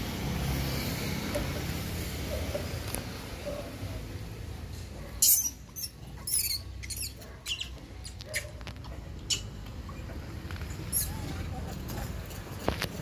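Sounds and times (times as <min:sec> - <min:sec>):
monkeys squeaking: 0:05.2 - 0:11.7.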